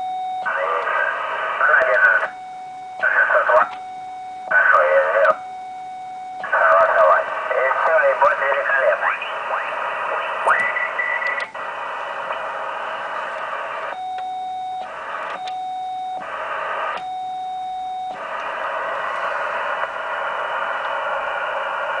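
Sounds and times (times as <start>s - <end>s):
long steady beeps: 0.0s - 1.2s, 1.8s - 7.8s, 13.8s - 21.8s
radio band hiss: 0.4s - 2.3s, 3.0s - 3.8s, 4.5s - 5.4s, 6.4s - 13.9s, 14.8s - 15.4s, 16.2s - 17.0s, 18.1s - 22.0s.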